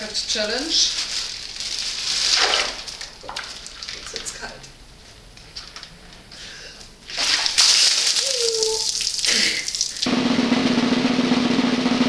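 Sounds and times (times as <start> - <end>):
ice water splashing: 1.3 - 4.5, 7.1 - 10.1
person crying out: 8.2 - 9.7
drum roll: 10.1 - 12.0.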